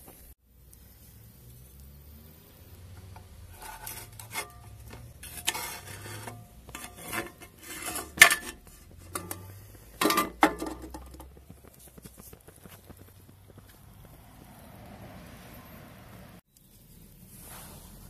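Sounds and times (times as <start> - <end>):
metal spoon scraping wok: 3.0 - 11.4.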